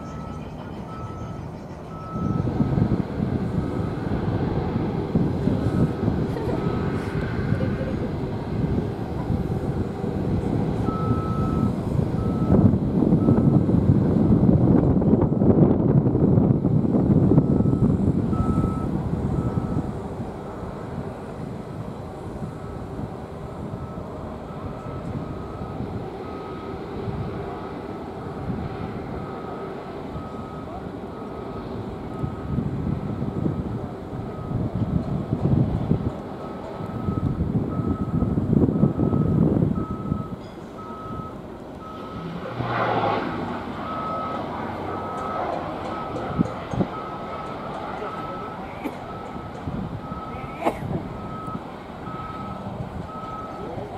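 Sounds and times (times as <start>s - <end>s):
reversing alarm beeping: 0.0s - 2.9s, 10.8s - 13.6s, 17.3s - 19.9s, 22.4s - 27.3s, 28.1s - 34.7s, 36.4s - 42.5s, 43.8s - 53.9s
turboprop engines rumbling: 0.0s - 53.9s
rushing noise: 41.1s - 53.9s.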